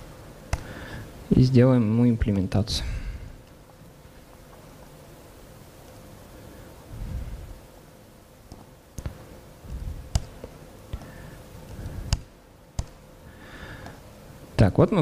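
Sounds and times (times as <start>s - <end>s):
faint steady hum: 0.0s - 15.0s
laptop keys clicking: 11.7s - 13.0s.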